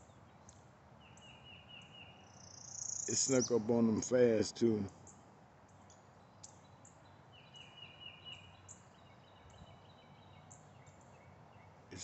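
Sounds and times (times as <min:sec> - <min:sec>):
rapid bird trill: 0:00.0 - 0:12.0
high bird chirps: 0:01.0 - 0:04.0, 0:05.8 - 0:12.0.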